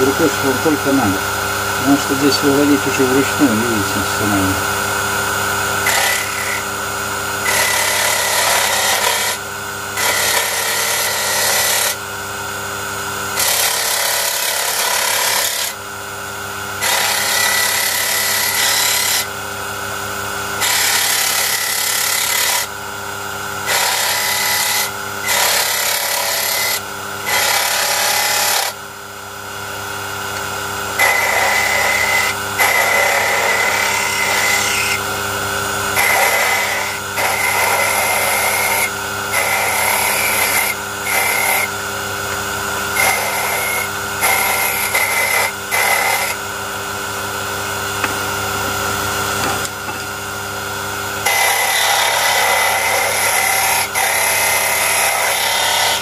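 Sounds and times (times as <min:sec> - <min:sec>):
power tool whining: 0:00.0 - 0:28.9, 0:29.7 - 0:46.6
sanding rasp on wood: 0:36.0 - 0:41.7, 0:51.3 - 0:56.0.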